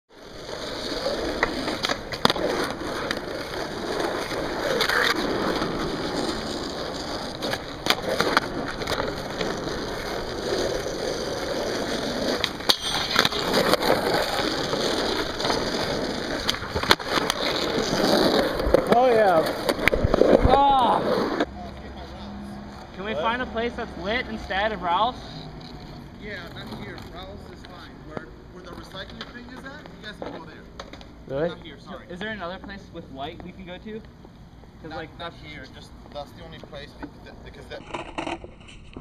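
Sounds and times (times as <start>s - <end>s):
skateboard wheels rolling on asphalt: 0.1s - 39.0s
skateboard clacks: 0.9s - 21.5s.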